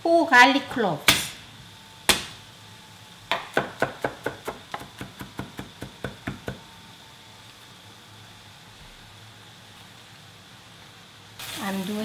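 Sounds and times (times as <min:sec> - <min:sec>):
knife chopping on wooden board: 0:02.1 - 0:02.4, 0:03.3 - 0:06.6.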